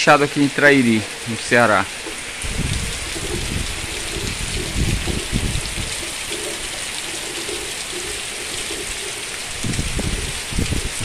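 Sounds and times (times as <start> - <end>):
heavy rain hissing: 0.0 - 11.0
low rumbles: 2.0 - 6.5.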